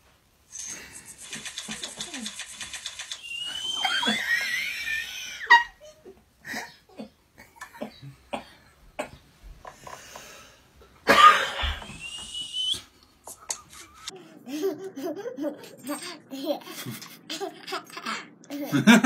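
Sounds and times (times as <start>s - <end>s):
toddler squealing: 3.4s - 5.7s.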